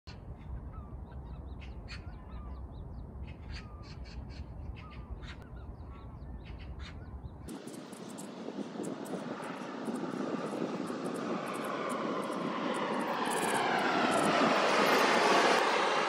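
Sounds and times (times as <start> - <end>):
wind rumble on microphone: 0.1 - 16.0
flock of birds calling: 3.3 - 7.0.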